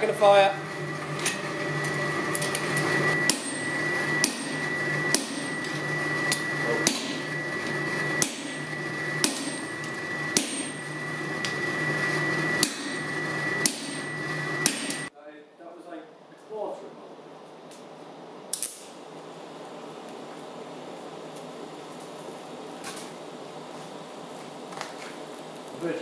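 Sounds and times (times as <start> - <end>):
steady hum: 0.0 - 26.0
hammer striking metal on anvil: 2.4 - 7.4, 8.1 - 11.6, 12.6 - 15.1.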